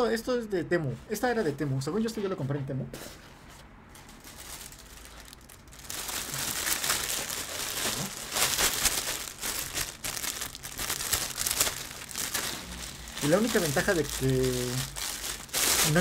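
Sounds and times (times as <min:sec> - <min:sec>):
plastic bag crinkling: 0:03.9 - 0:16.0.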